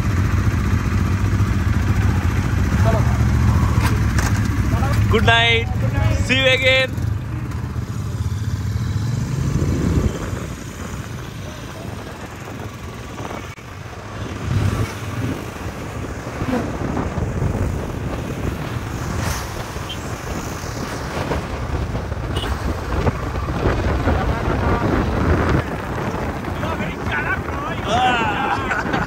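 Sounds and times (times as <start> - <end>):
vehicle low rumble: 0.0 - 29.0
wind buffeting microphone: 8.5 - 29.0.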